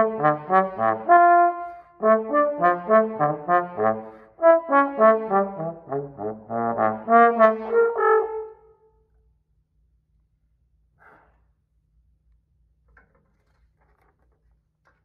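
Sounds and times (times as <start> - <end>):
trombone playing short notes: 0.0 - 8.6.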